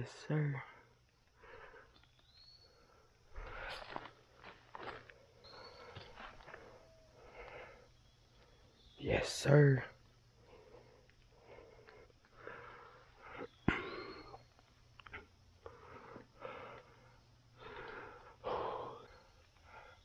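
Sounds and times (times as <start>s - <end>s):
person breathing heavily: 0.6s - 2.0s, 2.7s - 8.0s, 10.3s - 14.5s, 15.2s - 20.0s.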